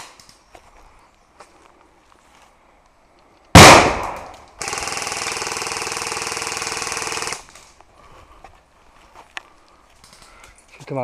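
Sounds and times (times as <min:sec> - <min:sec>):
airsoft gun full-auto burst: 0:03.6 - 0:07.5.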